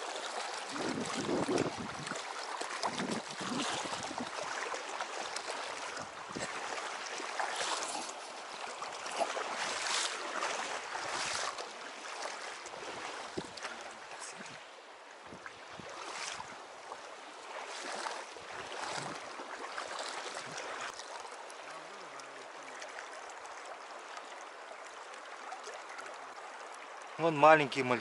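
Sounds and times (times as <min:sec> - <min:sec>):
boots splashing through water: 0:00.0 - 0:14.7, 0:15.3 - 0:23.3
stream current rushing: 0:00.0 - 0:28.0.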